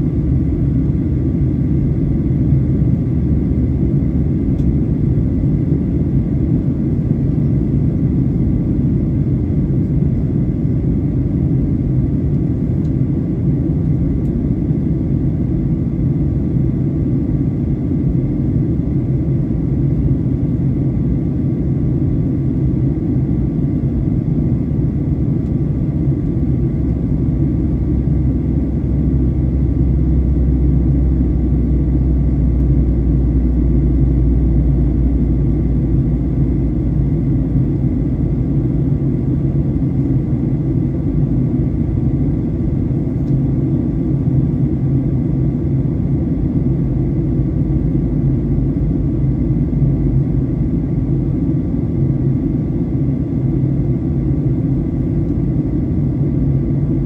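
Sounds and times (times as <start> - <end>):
airplane cabin rumble: 0.0 - 57.0
deep hum: 26.3 - 44.8.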